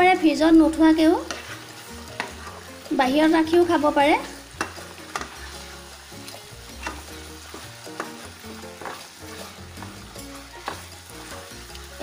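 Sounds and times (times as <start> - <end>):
chutney sizzling and bubbling in a wok: 0.0 - 12.0
spatula tapping and scraping a pan: 1.2 - 2.7, 4.4 - 11.9.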